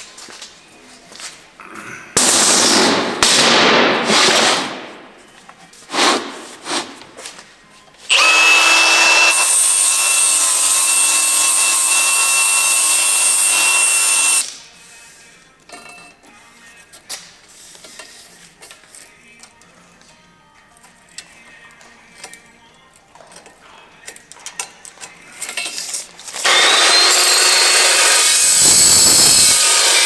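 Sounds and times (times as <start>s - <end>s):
angle grinder grinding steel: 8.1s - 14.4s, 26.4s - 30.0s.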